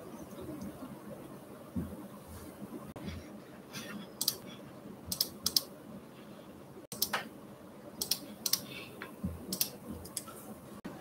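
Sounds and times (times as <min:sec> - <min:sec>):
keyboard typing clicks: 0:04.2 - 0:04.4, 0:05.1 - 0:05.7, 0:06.9 - 0:07.3, 0:08.0 - 0:08.7, 0:09.5 - 0:10.4.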